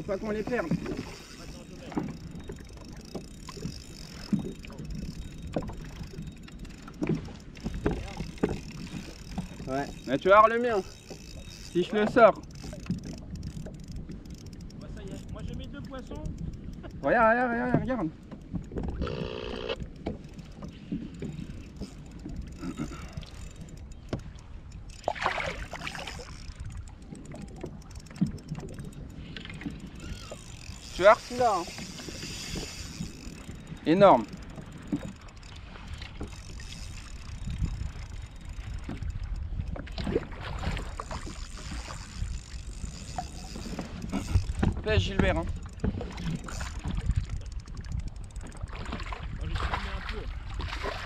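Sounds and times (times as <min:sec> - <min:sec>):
wind and water on microphone: 0:00.0 - 0:51.0
knocks and splashes: 0:06.9 - 0:09.7, 0:25.0 - 0:26.5, 0:38.7 - 0:42.2, 0:48.4 - 0:51.0
single-pitch tone: 0:19.0 - 0:19.8.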